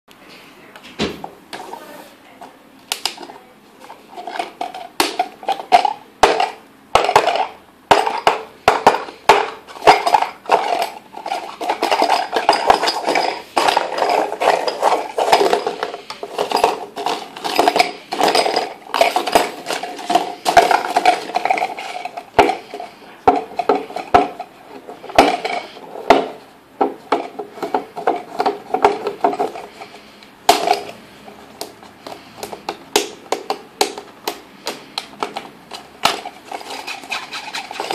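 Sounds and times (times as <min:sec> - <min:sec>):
scraping: 0:36.2 - 0:37.9.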